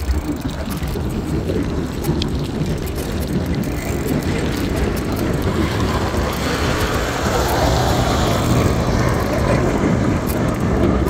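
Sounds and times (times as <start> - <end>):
rumble of road traffic: 0.0 - 11.0
vehicle passing: 5.4 - 11.0.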